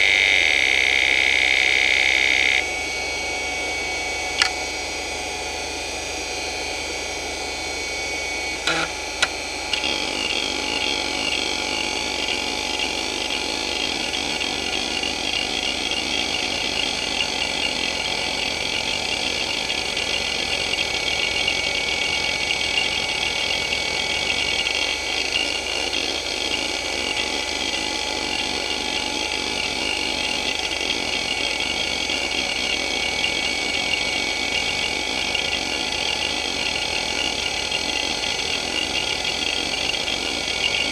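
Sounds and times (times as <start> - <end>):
hard drive seek chatter: 0.0 - 2.7, 4.2 - 5.0, 6.8 - 40.9
hard drive spinning whine: 0.0 - 40.9
hard drive sharp clicks: 8.6 - 10.4.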